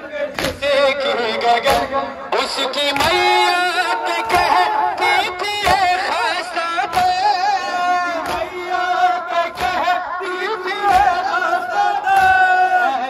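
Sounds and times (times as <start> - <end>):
crowd of men singing: 0.0 - 13.0
man singing a lament: 0.0 - 13.0
hands striking chests: 0.3 - 0.7, 1.6 - 2.0, 4.2 - 6.1, 8.2 - 8.6.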